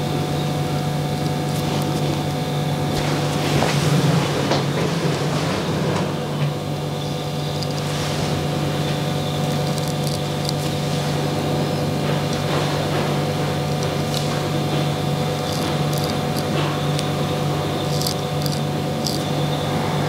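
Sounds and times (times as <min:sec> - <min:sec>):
low mechanical hum: 0:00.0 - 0:20.0
razor scraping stubble: 0:01.1 - 0:03.4, 0:07.0 - 0:19.5.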